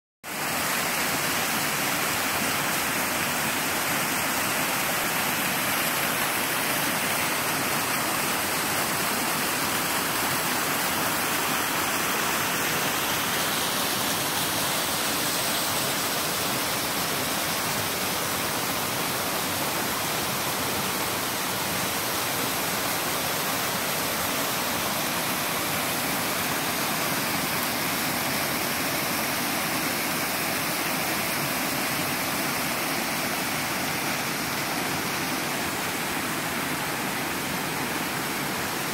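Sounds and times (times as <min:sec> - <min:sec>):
waterfall rushing: 0:00.3 - 0:38.9.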